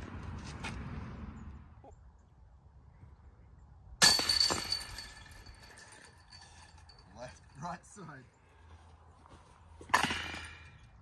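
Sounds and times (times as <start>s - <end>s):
disc hitting basket chains: 4.0s - 7.6s, 9.9s - 11.0s.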